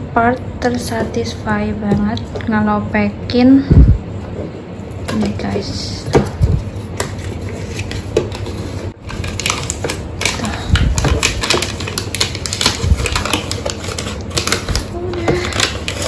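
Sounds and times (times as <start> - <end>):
adhesive film peeling crackle: 9.0 - 16.0.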